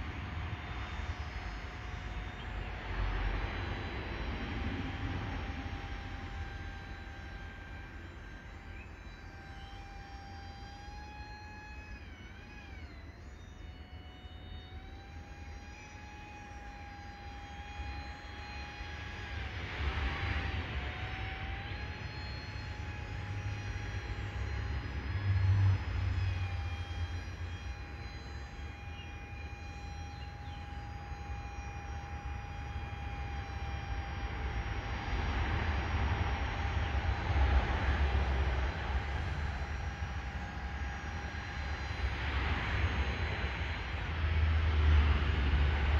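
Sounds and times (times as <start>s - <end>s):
high-pitched motor whine: 0.0s - 45.9s
propeller rushing: 31.8s - 45.9s.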